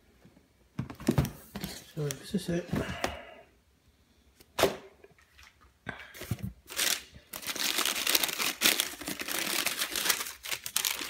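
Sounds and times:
tissue paper crackling rustle: 0:06.7 - 0:11.0.

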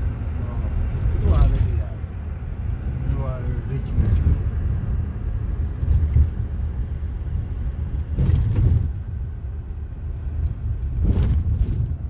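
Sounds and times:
truck engine and road rumble: 0:00.0 - 0:12.0.

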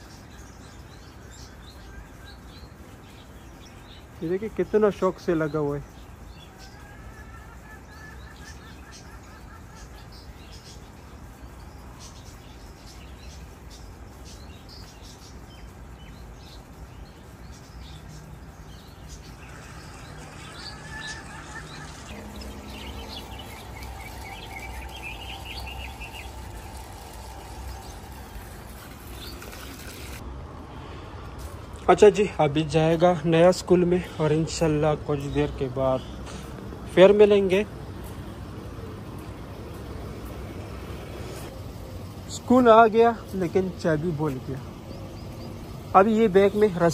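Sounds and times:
birds chirping and twittering: 0:00.0 - 0:46.9
low outdoor rumble: 0:15.4 - 0:46.9.

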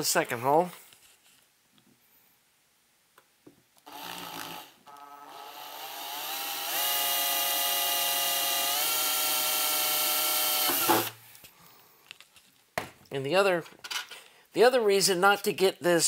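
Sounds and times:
electric drill boring through metal: 0:03.9 - 0:11.2.

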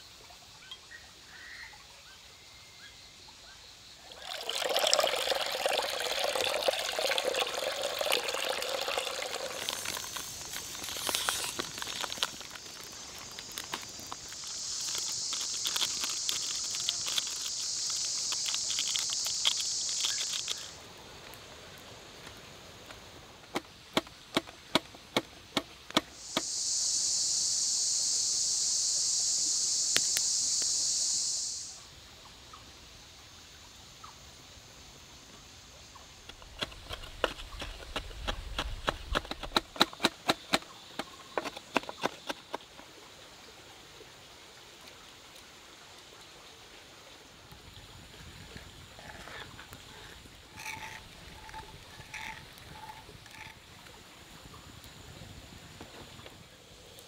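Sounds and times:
insects buzzing: 0:00.0 - 0:42.8, 0:47.6 - 0:57.0
seasoning packets crinkling: 0:09.3 - 0:20.7.

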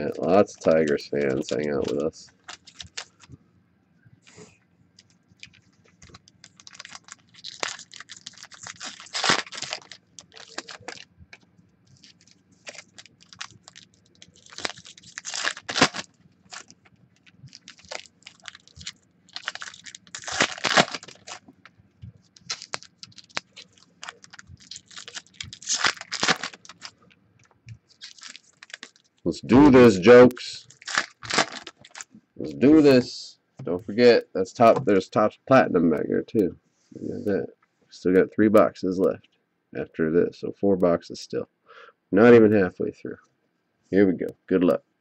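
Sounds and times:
foil wrappers tearing and crinkling: 0:00.0 - 0:03.3, 0:05.4 - 0:11.1, 0:12.0 - 0:21.5, 0:22.2 - 0:27.0, 0:27.9 - 0:30.0, 0:30.6 - 0:32.1.

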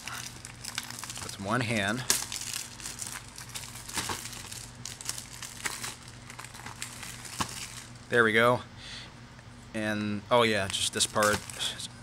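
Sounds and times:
plastic wrap crinkling and tearing: 0:00.0 - 0:08.1, 0:10.6 - 0:11.8.

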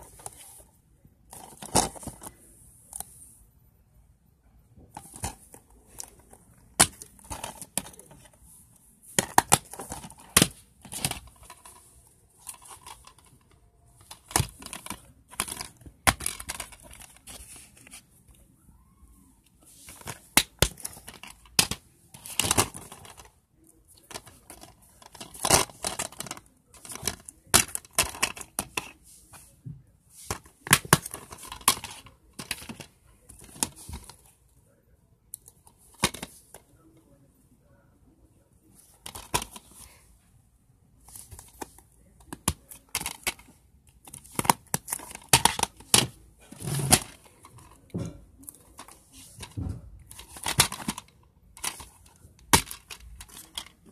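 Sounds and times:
plastic dvd cases clacking: 0:01.3 - 0:02.3, 0:04.9 - 0:08.4, 0:09.1 - 0:18.0, 0:19.8 - 0:23.3, 0:23.9 - 0:29.5, 0:30.2 - 0:34.3, 0:35.4 - 0:36.6, 0:38.8 - 0:40.0, 0:41.1 - 0:53.9.

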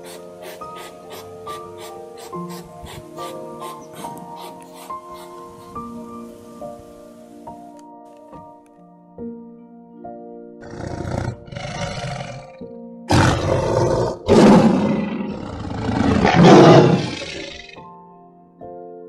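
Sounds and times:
background music sustained notes: 0:00.0 - 0:19.0
tiger roaring: 0:10.6 - 0:17.8.

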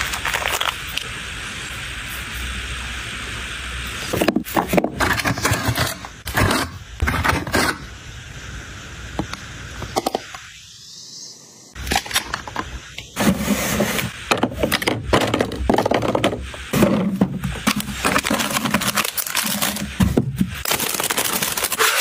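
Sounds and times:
steady hiss: 0:00.0 - 0:22.0
scraping and rustling: 0:13.2 - 0:22.0.

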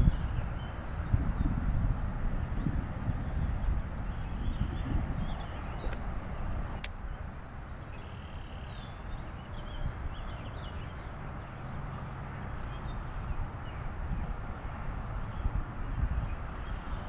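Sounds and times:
wind buffeting microphone: 0:00.0 - 0:08.0, 0:08.6 - 0:17.0
faint bird chirps: 0:07.6 - 0:11.6.

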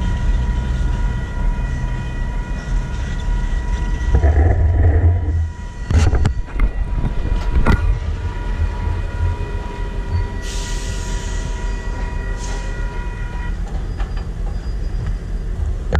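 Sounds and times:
diesel locomotive rumbling: 0:00.0 - 0:15.9
steady high tone: 0:04.1 - 0:06.4.

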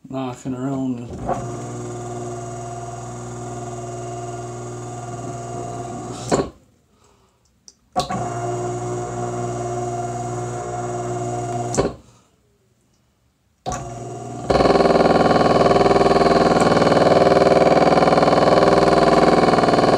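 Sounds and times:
blower motor humming: 0:01.1 - 0:06.6, 0:08.0 - 0:12.0, 0:13.7 - 0:19.9
motor knocking: 0:01.1 - 0:06.6, 0:08.0 - 0:12.0, 0:13.7 - 0:19.9.

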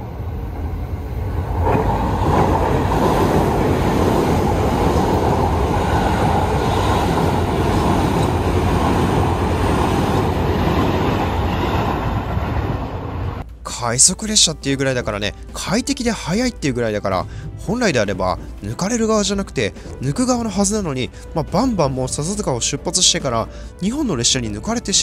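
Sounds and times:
train wheels rumbling on rails: 0:00.0 - 0:13.5, 0:17.0 - 0:23.6.

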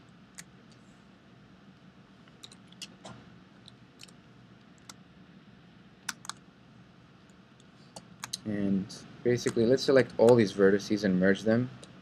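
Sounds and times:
faint steady hum: 0:00.0 - 0:12.0
keyboard and mouse clicking: 0:02.3 - 0:04.2, 0:06.0 - 0:06.4, 0:09.4 - 0:10.4.

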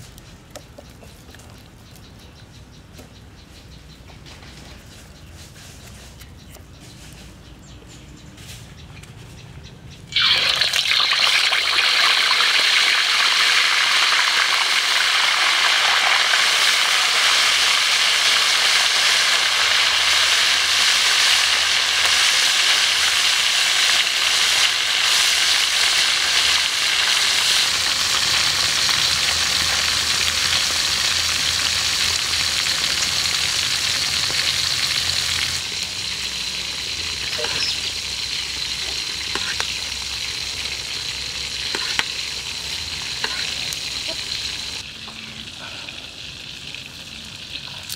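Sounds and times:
fish sizzling in hot oil: 0:10.2 - 0:45.1.

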